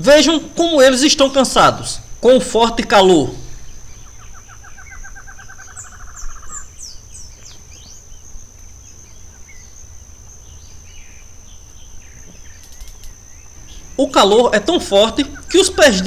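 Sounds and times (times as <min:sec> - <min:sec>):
bird trill: 0:00.0 - 0:16.0
high-pitched whine: 0:00.0 - 0:16.0
high bird chirps: 0:03.4 - 0:16.0.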